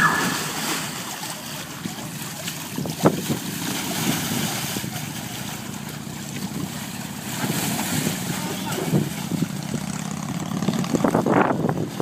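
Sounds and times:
steady rushing noise: 0.0 - 1.3
water sloshing in pool: 0.0 - 10.5.

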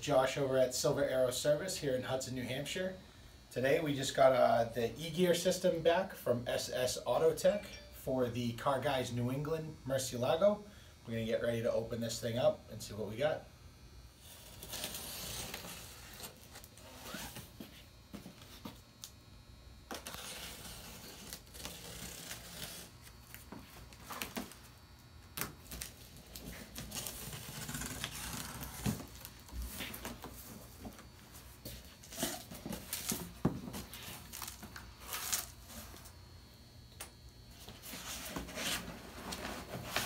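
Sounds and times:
packing tape ripping: 14.2 - 17.5, 19.9 - 23.4, 25.3 - 29.5, 32.1 - 36.0
cardboard flaps scraping: 25.6 - 30.6.

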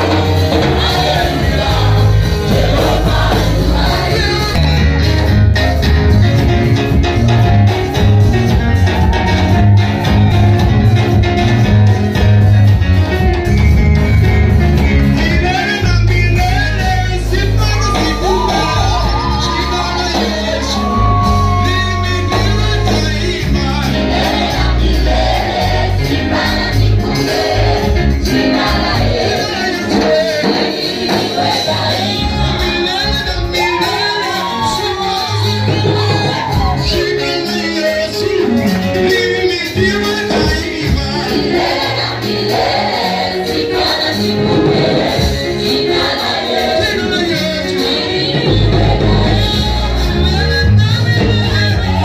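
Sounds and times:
band with heavy bass line: 0.0 - 52.0
congregation singing: 0.0 - 52.0
people shouting: 17.8 - 22.6, 33.6 - 37.0.

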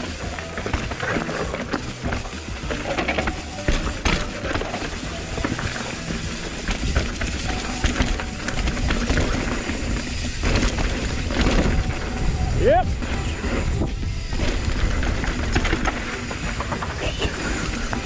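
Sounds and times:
bike rattling and knocking: 0.0 - 18.0
tyre and wind rush: 0.0 - 18.0.

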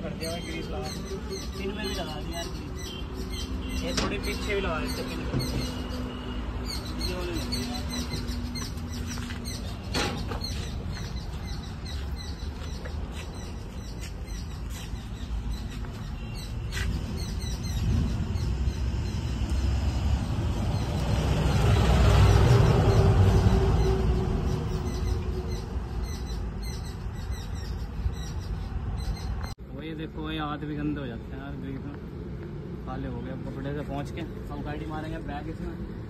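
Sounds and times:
birds chirping: 0.0 - 32.0.

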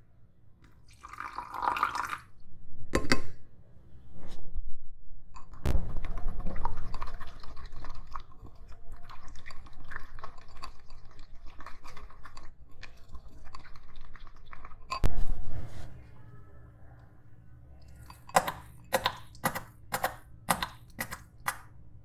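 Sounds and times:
spoon stirring wet slime: 6.2 - 15.1, 17.8 - 21.8.

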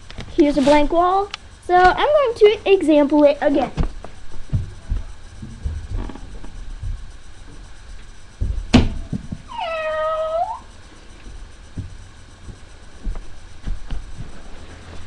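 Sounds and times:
cat meowing: 9.5 - 10.7.

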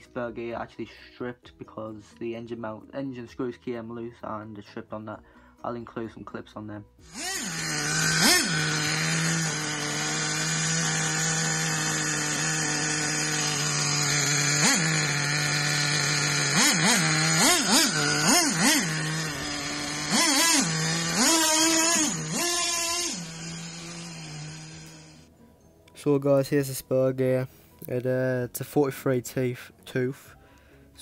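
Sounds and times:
rc truck engine idling and revving: 7.0 - 25.3.

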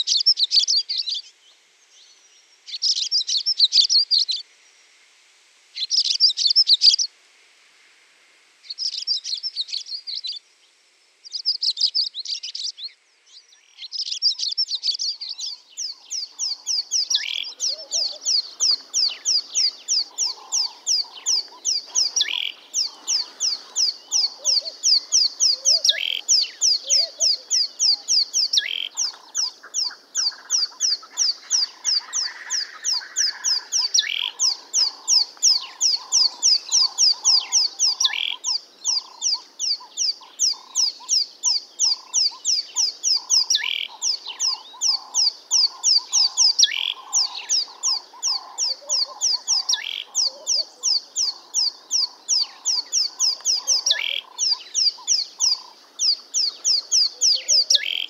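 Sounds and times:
fainter lower bird calls: 0.0 - 4.5, 5.8 - 7.1, 8.6 - 58.0
songbirds chirping and twittering: 0.0 - 58.0.

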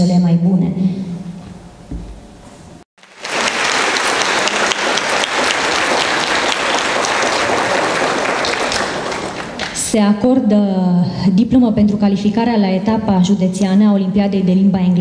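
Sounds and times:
audience applauding: 3.0 - 9.9.

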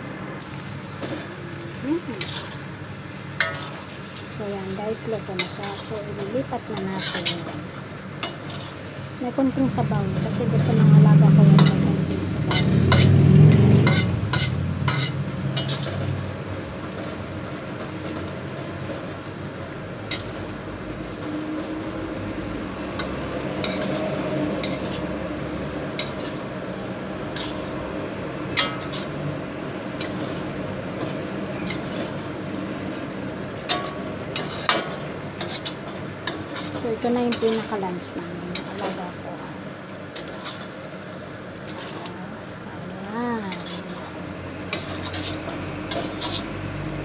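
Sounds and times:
spatula stirring noodles in wok: 2.1 - 9.5, 11.3 - 42.8, 43.4 - 47.0
spatula clinking on wok: 3.4 - 3.8, 11.5 - 16.2, 28.5 - 29.2
steady background hiss: 26.0 - 45.4.

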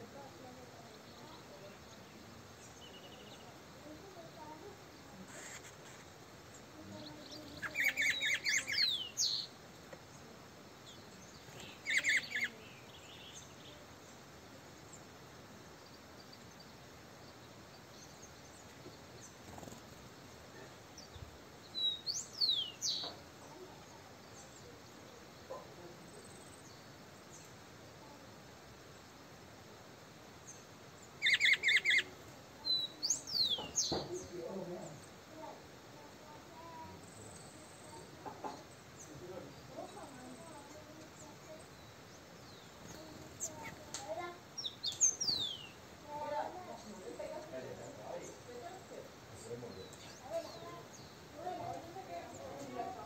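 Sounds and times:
small birds chirping and whistling: 5.1 - 9.5, 10.8 - 13.7, 21.0 - 23.2, 30.4 - 35.1, 36.8 - 45.9, 49.3 - 53.0.

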